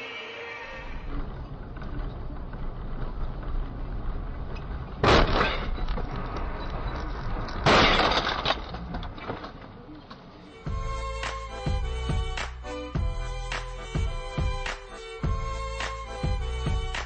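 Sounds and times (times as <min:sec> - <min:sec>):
steady low rumble: 0:00.7 - 0:07.7, 0:10.7 - 0:17.0
car crash with breaking glass: 0:05.0 - 0:09.6.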